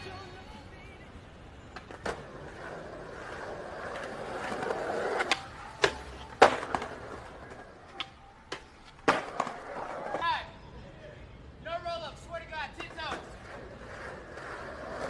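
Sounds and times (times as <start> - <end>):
skateboard wheels rolling on concrete: 0.0 - 15.0
skateboard tail popping: 3.8 - 10.2.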